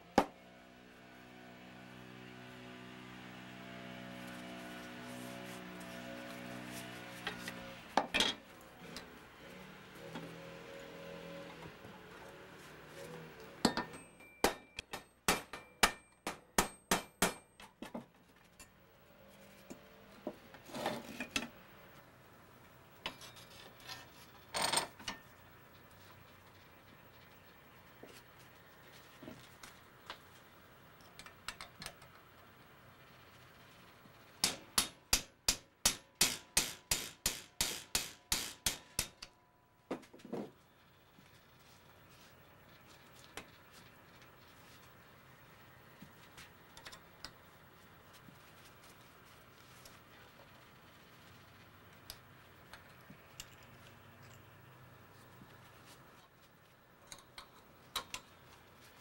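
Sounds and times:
scrape: 20.6 - 21.2.

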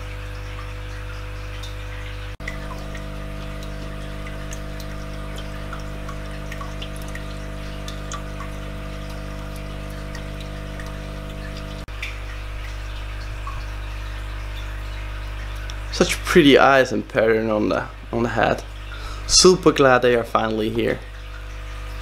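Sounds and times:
water trickling and dripping: 0.0 - 22.0
steady low hum: 2.3 - 11.9.

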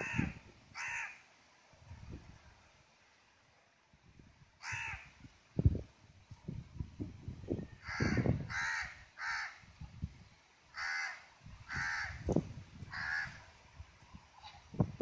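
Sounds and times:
crow cawing: 0.0 - 1.2, 4.6 - 5.1, 7.8 - 9.6, 10.7 - 12.2, 12.9 - 13.4.

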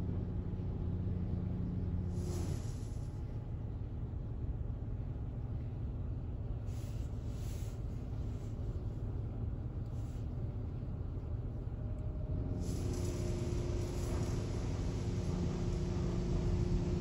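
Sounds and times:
water spray hissing on car: 2.1 - 3.1, 12.6 - 17.0
car wash machine rumble: 12.4 - 17.0.

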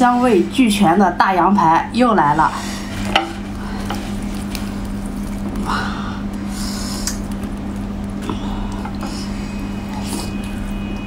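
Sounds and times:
steady low hum: 0.0 - 11.0
wet tearing of meat: 3.0 - 9.0.

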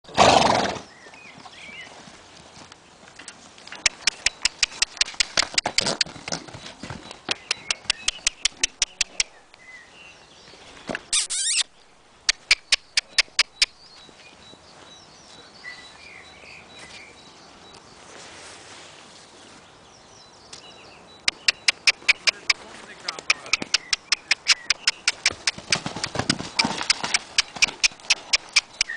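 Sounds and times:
horse hoofbeats: 1.2 - 9.2, 21.3 - 28.9
birds chirping faintly: 3.6 - 28.9.

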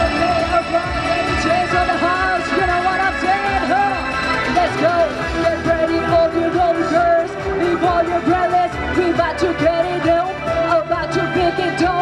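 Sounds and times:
amplified backing music with beat: 0.0 - 12.0
woman singing into a microphone: 5.7 - 12.0.

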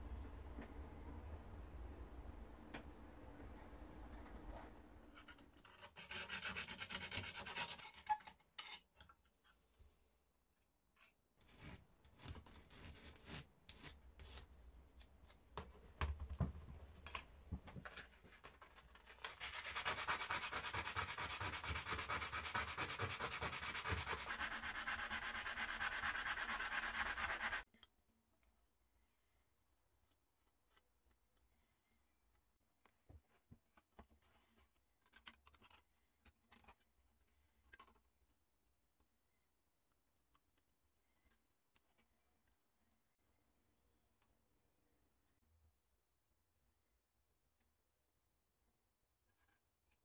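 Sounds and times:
file strokes on sheet metal: 5.2 - 8.8, 19.3 - 27.6
fast steady rubbing on metal: 19.4 - 27.6.

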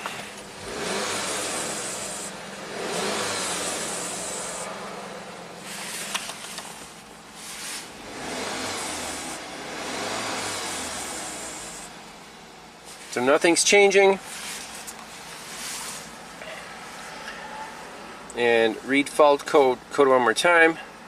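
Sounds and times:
car engine running: 0.0 - 13.5.

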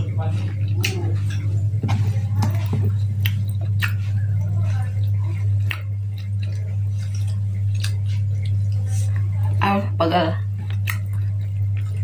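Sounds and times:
person chewing food: 0.0 - 9.6, 10.4 - 12.0
low electrical hum: 0.0 - 12.0
soft clicks of fingers and food: 2.4 - 9.3, 10.6 - 12.0.

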